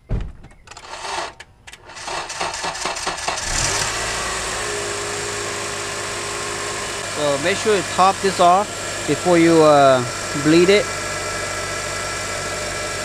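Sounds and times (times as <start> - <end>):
thump and knocks: 0.0 - 0.7
car engine cranking and idling: 0.5 - 13.0.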